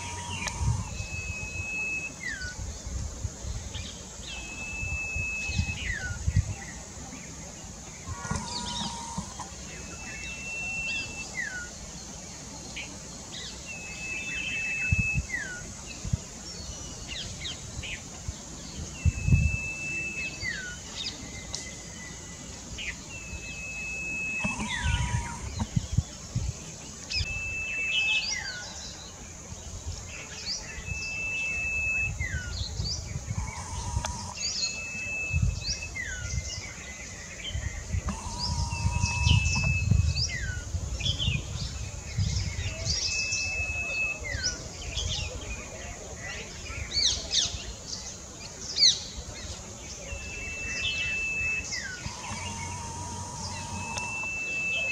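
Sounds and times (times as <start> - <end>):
songbird whistling: 0.0 - 2.6, 4.2 - 6.6, 8.1 - 11.8, 13.4 - 15.7, 18.7 - 25.8, 27.1 - 29.0, 30.4 - 40.7, 42.4 - 45.3, 49.9 - 54.9
birds chirping: 0.0 - 54.9.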